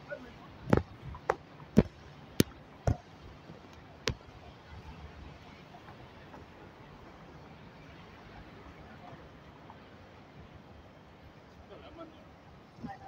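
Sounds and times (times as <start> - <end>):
faint street background: 0.0 - 13.0
sharp knocks: 0.7 - 3.0.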